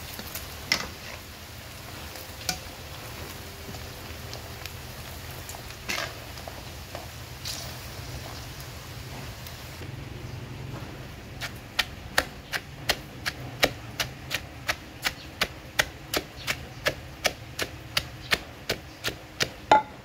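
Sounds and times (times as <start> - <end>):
wooden pestle pounding in mortar: 11.5 - 20.0.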